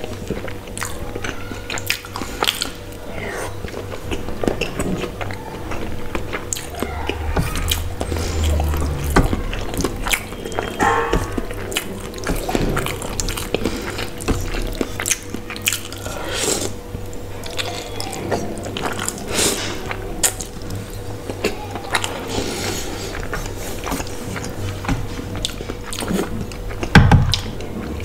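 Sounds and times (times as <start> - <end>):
slurping and chewing noodles: 0.0 - 28.0.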